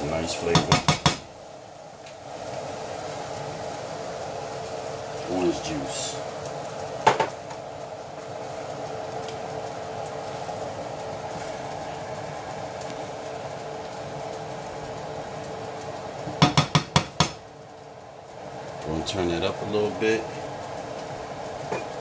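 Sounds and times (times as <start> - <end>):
sauce simmering with bubbling hiss: 0.0 - 22.0
spatula knocking on pan: 0.5 - 1.3, 16.3 - 17.4.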